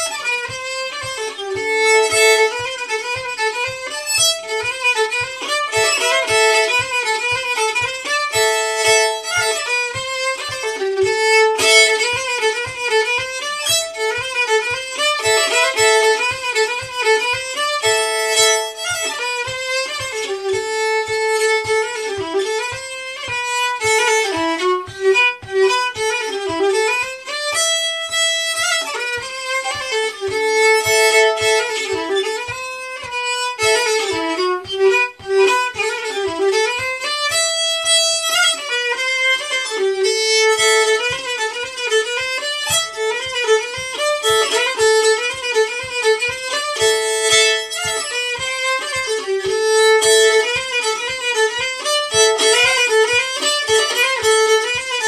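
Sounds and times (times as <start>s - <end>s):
soft low tapping beat: 0.0s - 55.0s
solo fiddle playing fast tune: 0.0s - 55.0s.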